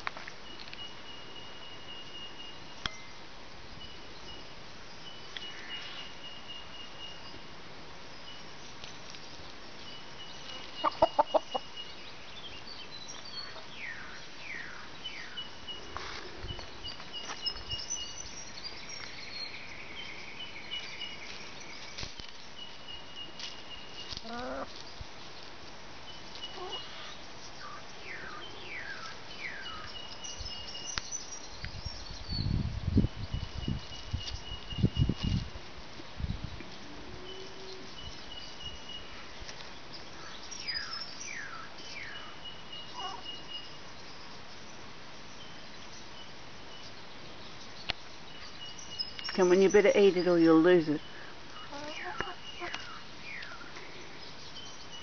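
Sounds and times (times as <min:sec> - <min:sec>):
wild birds calling: 0:10.3 - 0:12.5, 0:26.4 - 0:30.3, 0:37.2 - 0:43.7, 0:48.4 - 0:55.0
hens clucking: 0:10.7 - 0:11.7, 0:24.2 - 0:24.8, 0:51.7 - 0:52.9.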